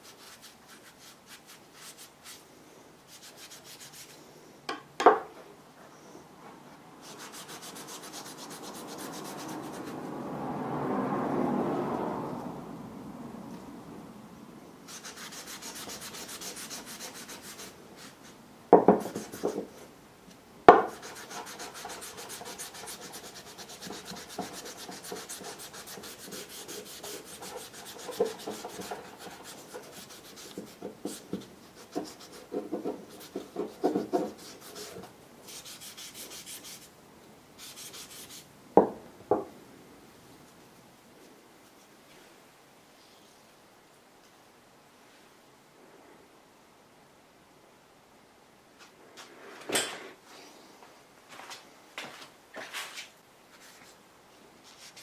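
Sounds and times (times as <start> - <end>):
sanding wooden handle: 3.1 - 4.2, 7.0 - 10.0, 14.9 - 19.7, 20.8 - 36.9, 37.6 - 38.5.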